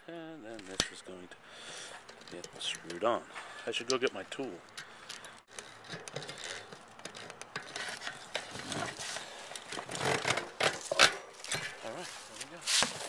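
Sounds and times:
metal tools scraping and clicking: 0:02.0 - 0:03.1.

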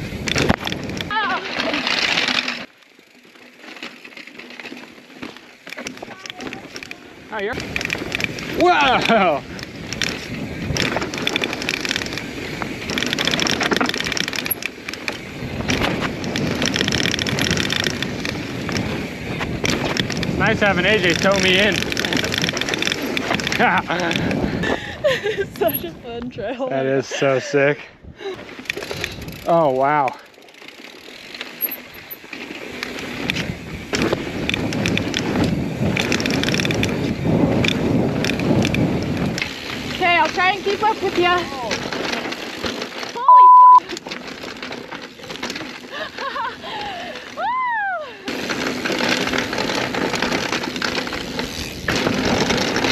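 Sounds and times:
bike freehub ticking: 0:00.0 - 0:24.9, 0:28.5 - 0:52.9
bike tyre and frame rattle: 0:00.0 - 0:26.4, 0:28.2 - 0:52.9
wind on microphone: 0:15.2 - 0:26.5, 0:33.1 - 0:42.0.

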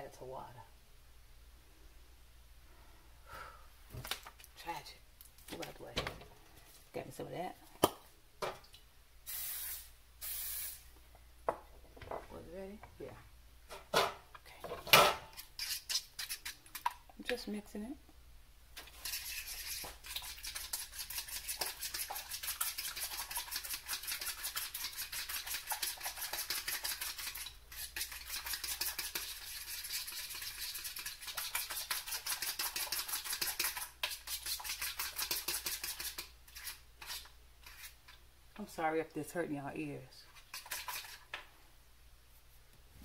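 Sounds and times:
spoon beating batter in bowl: 0:15.3 - 0:17.4, 0:18.8 - 0:38.2, 0:40.3 - 0:41.4.

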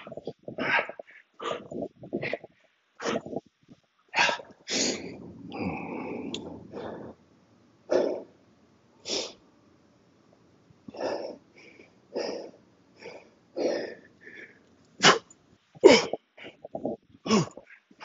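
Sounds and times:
man breathing heavily: 0:00.0 - 0:03.4, 0:04.2 - 0:07.2, 0:10.9 - 0:14.7
man grunting: 0:17.3 - 0:17.6.

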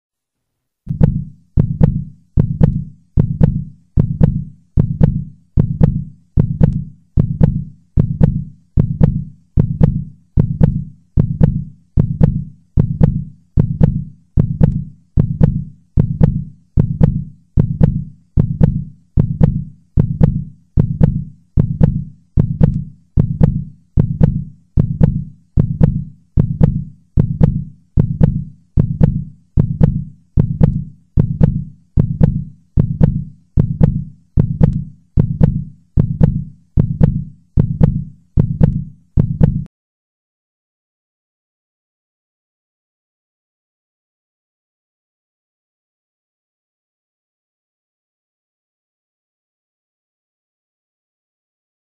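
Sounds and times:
heartbeat thuds: 0:00.9 - 0:39.7.

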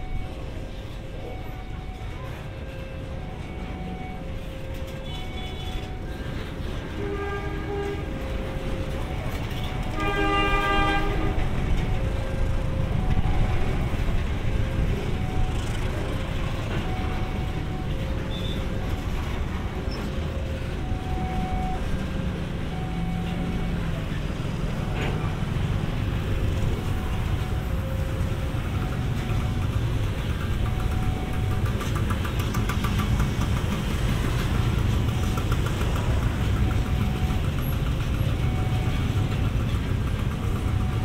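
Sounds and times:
train rumble: 0:00.0 - 0:41.0
locomotive horn blasts: 0:06.9 - 0:08.3, 0:09.7 - 0:11.5.

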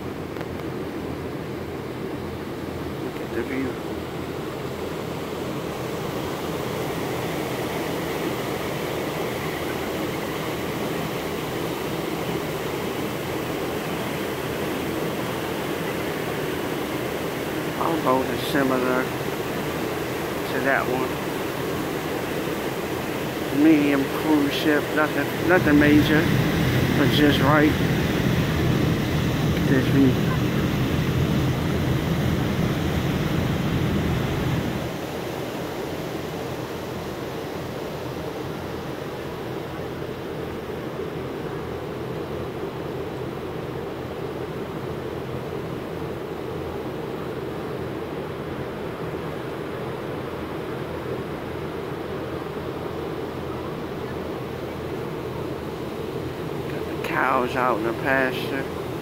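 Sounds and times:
propeller wake churning: 0:00.0 - 0:59.0
wind and water rushing: 0:00.0 - 0:59.0
boat engine drone: 0:01.2 - 0:41.0.

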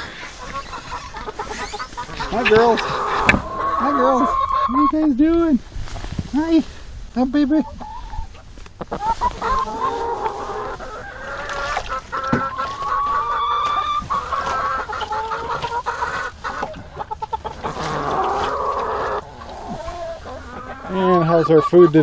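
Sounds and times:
hens clucking: 0:00.0 - 0:05.5, 0:07.2 - 0:22.0.

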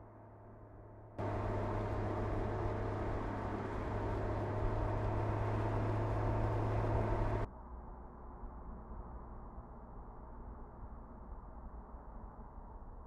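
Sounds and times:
road and wind noise: 0:00.0 - 0:13.0
car engine hum: 0:01.2 - 0:07.5.

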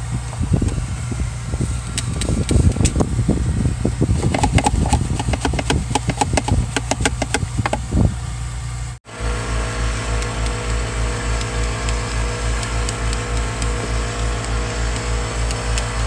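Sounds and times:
pulsing low hum: 0:00.0 - 0:16.0
steady low hum: 0:00.0 - 0:16.0
scrubbing plastic cup holders: 0:04.2 - 0:07.8.

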